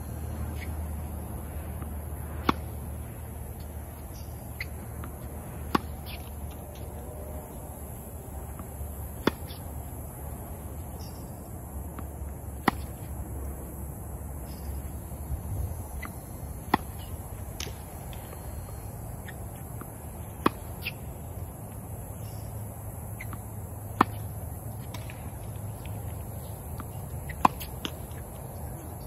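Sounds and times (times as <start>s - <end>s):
tennis racket hitting ball: 2.4s - 2.8s, 5.6s - 6.3s, 9.0s - 9.6s, 12.6s - 13.0s, 26.7s - 28.2s.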